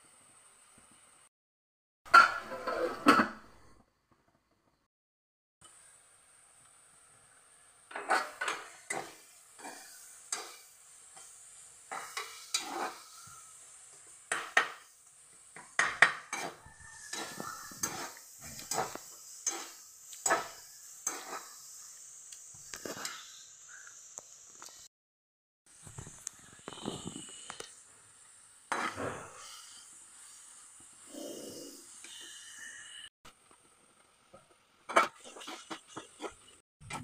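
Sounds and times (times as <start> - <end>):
vegetables sizzling: 5.6 - 24.9, 25.7 - 36.6
spatula scraping a pan: 7.9 - 13.6, 15.6 - 21.6, 28.7 - 30.4, 34.9 - 37.0.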